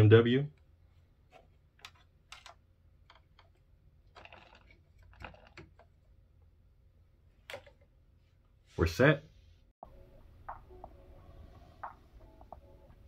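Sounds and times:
plug and cable clicks and rattles: 1.3 - 6.0, 7.4 - 7.9.

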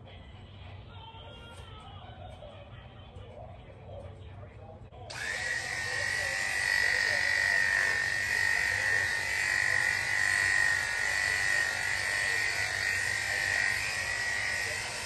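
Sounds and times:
electric clippers whining: 5.1 - 15.0.

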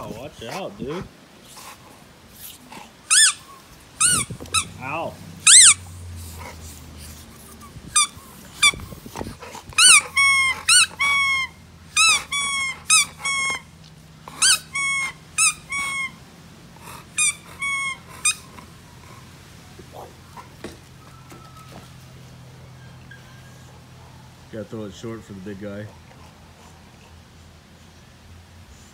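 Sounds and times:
puppy whining: 1.6 - 24.4.

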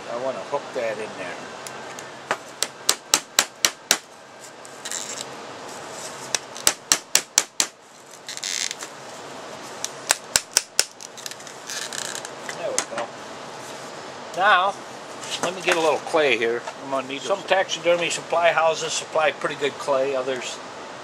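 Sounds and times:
rustling: 4.3 - 6.6, 7.8 - 10.0, 11.0 - 12.7.

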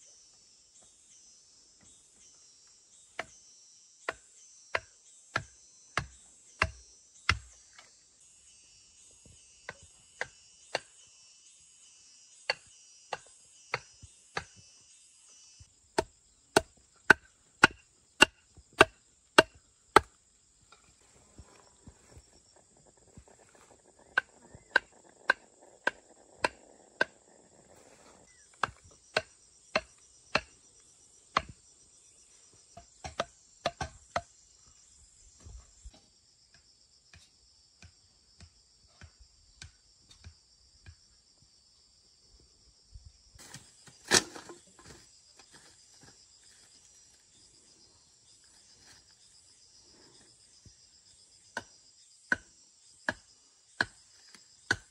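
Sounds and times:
insects chirring: 0.0 - 54.9
tool striking bamboo: 4.1 - 7.9, 12.5 - 14.6, 16.0 - 20.9, 28.6 - 30.6, 31.3 - 31.6, 32.8 - 34.3, 43.4 - 45.0, 52.3 - 52.5, 53.1 - 54.9.

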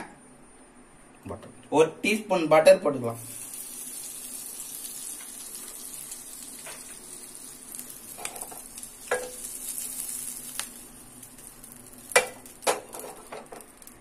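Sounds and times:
butter sizzling in a frying pan: 3.2 - 14.0.

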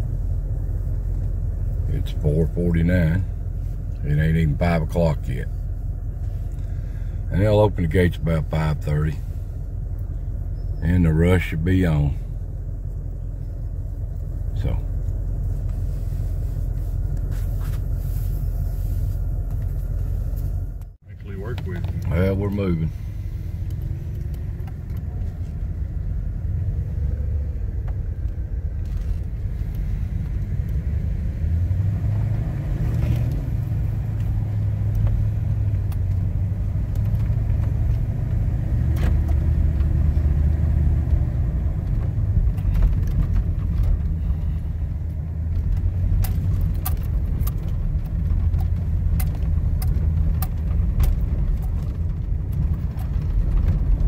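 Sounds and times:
car engine and tyre rumble: 0.0 - 54.0
light clicks and rattles: 23.6 - 25.8, 34.1 - 54.0.

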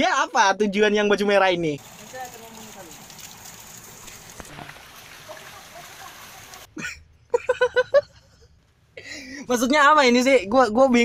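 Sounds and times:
stream rushing: 1.8 - 6.7.

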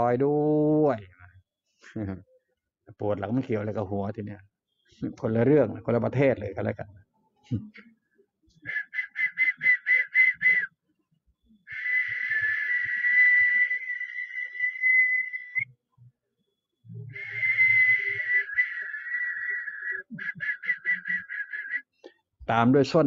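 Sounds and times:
shrill whistle-like tones: 8.5 - 10.8, 11.4 - 15.8, 16.4 - 22.0.

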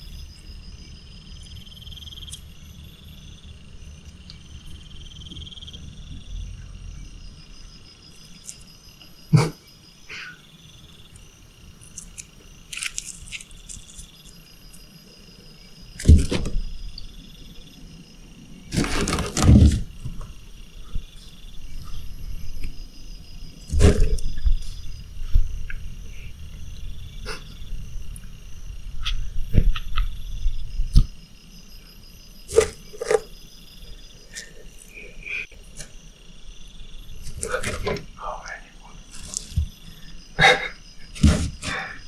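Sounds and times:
high pulsing insect chirping: 0.0 - 42.0
loud thumps and scuffs: 18.7 - 20.3, 41.2 - 41.8.

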